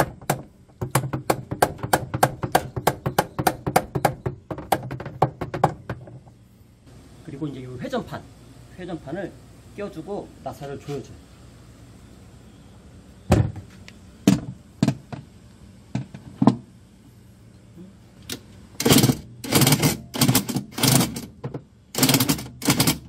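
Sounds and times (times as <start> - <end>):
sharp plastic knocks: 0.0 - 6.3.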